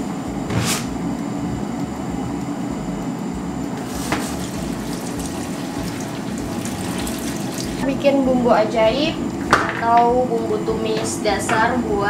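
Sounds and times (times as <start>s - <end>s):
appliance fan humming: 0.0s - 12.0s
tap water running into colander: 3.8s - 7.9s.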